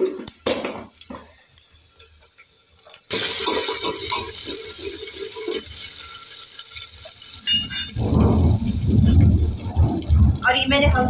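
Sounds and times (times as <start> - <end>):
hot oil sizzling: 0.0 - 11.0
metal spoon scraping a pot: 3.4 - 8.0.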